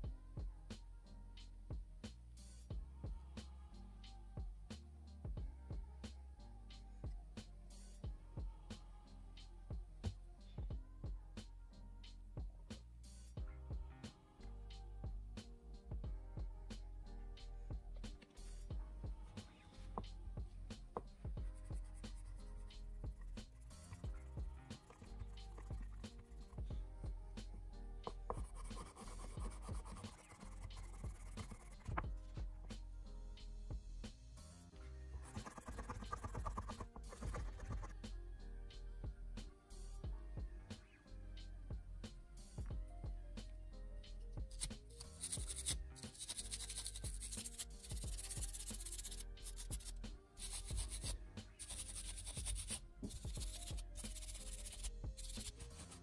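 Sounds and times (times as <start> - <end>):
soft background music: 0.0 - 56.0
toothbrush scrubbing metal: 22.0 - 26.6, 28.3 - 32.0, 35.3 - 37.9, 44.5 - 56.0
cloth rubbing on pen: 28.3 - 32.0, 35.2 - 37.9.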